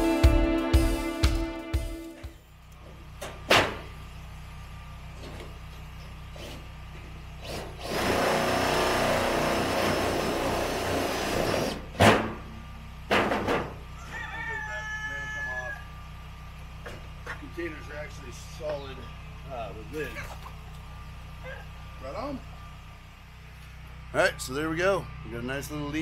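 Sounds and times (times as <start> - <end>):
rooster crowing: 13.8 - 16.0.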